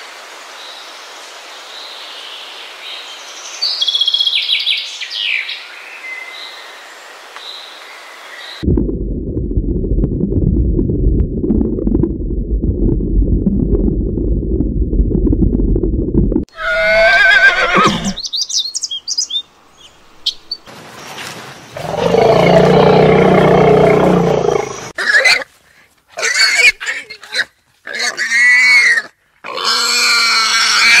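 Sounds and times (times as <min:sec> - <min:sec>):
horse whinnying: 0:16.5 - 0:18.2
warthogs squealing and grunting: 0:26.2 - 0:31.0.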